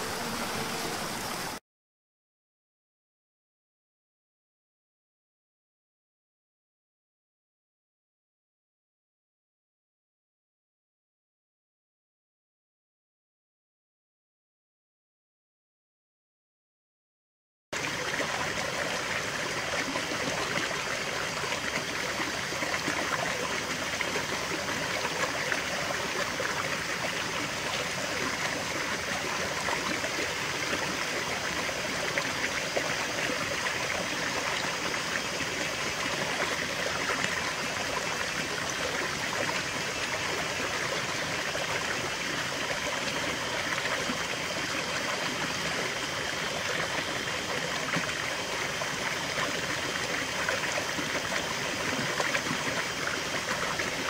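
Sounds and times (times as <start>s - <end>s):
stream babbling and splashing: 0.0s - 1.6s, 17.8s - 54.0s.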